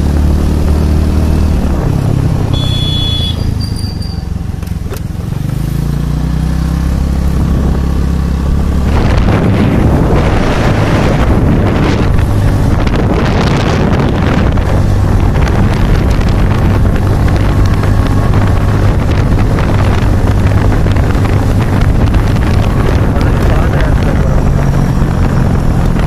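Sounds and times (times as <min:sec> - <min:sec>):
motorcycle engine running: 0:00.0 - 0:26.0
wind buffeting microphone: 0:06.9 - 0:26.0.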